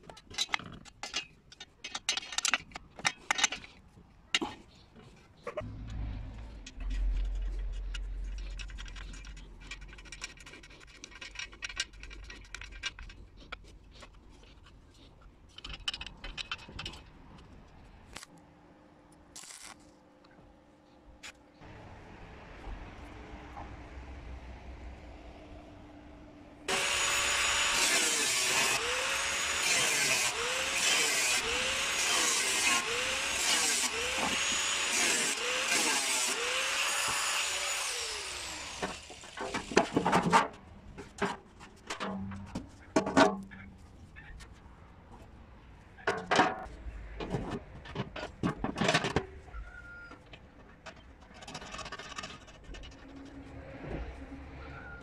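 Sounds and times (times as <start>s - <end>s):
scraping rustle: 3.2s - 17.6s
power tool grinding metal: 26.7s - 39.8s
metal knocks and clanks: 39.3s - 43.8s.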